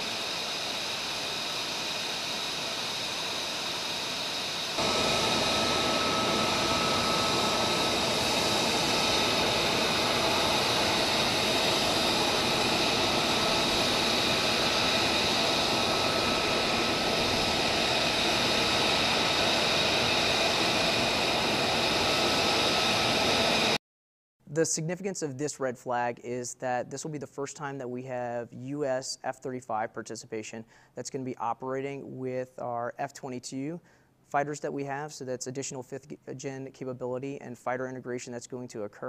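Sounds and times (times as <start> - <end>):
jet engine idling: 0.0 - 23.8.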